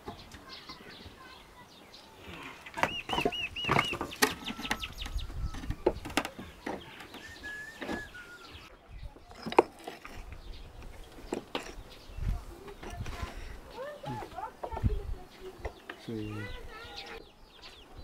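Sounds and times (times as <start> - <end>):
chickens clucking: 2.2 - 8.8.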